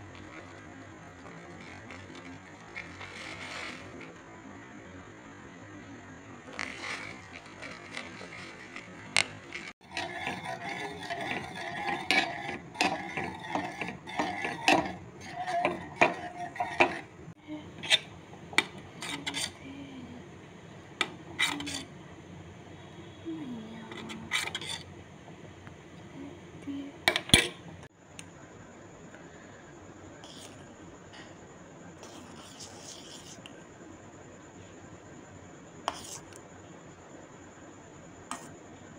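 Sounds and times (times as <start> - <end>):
whisk and spoon clinking in metal pot: 9.8 - 17.1.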